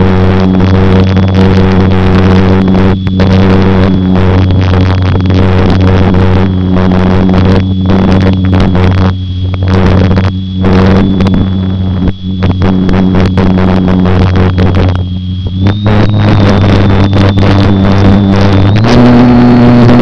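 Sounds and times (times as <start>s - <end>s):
electric motor and propeller whine: 0.0s - 20.0s.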